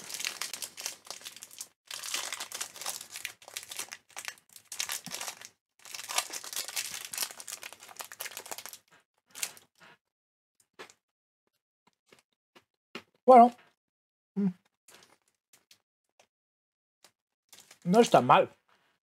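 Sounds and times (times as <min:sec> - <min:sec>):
plastic wrapper crinkling and tearing: 0:00.0 - 0:09.6, 0:17.6 - 0:18.0.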